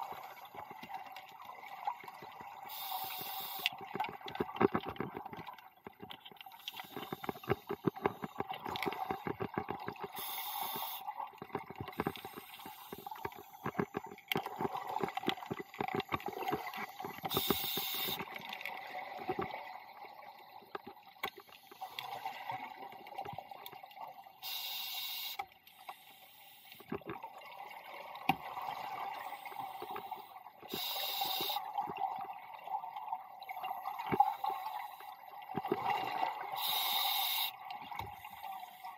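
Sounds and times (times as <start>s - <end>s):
scuba regulator inhalation hiss: 2.7s - 3.7s, 10.2s - 11.0s, 17.3s - 18.2s, 24.4s - 25.4s, 29.3s - 31.7s, 36.6s - 37.6s
exhaled bubbles underwater: 26.8s - 38.9s.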